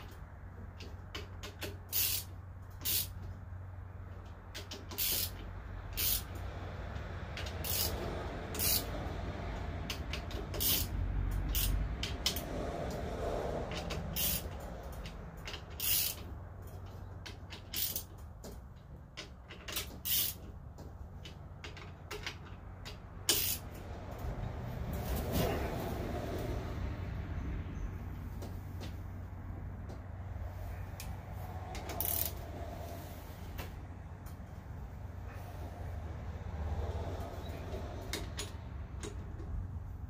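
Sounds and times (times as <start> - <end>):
ratchet wrench clicking: 0.0 - 3.4, 4.1 - 24.3, 31.0 - 32.6.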